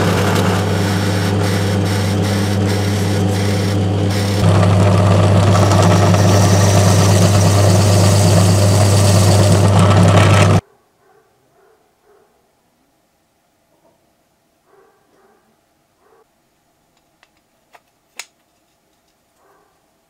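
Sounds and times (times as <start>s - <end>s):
cutter machining wood: 0.0s - 10.6s
drill bit crackling in wood: 0.0s - 10.6s
drill press motor humming: 0.0s - 10.6s.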